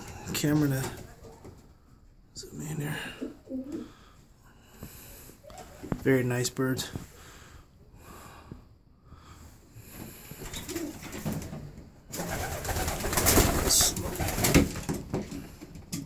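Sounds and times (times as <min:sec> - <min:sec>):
pigeons cooing: 0:02.9 - 0:04.1, 0:10.4 - 0:11.3.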